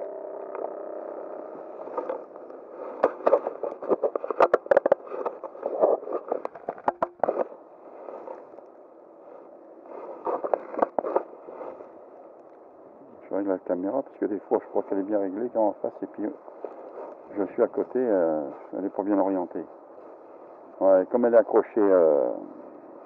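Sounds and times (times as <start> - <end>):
camera handling noise: 1.8 - 7.5.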